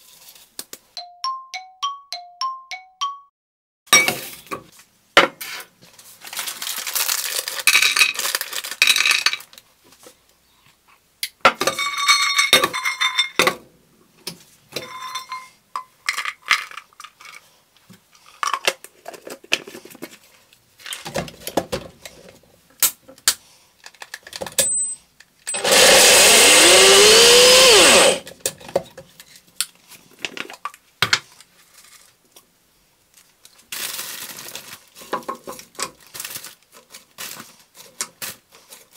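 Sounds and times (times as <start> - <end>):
blender running: 25.5 - 28.2
blender cup and utensils clinking: 25.5 - 28.3.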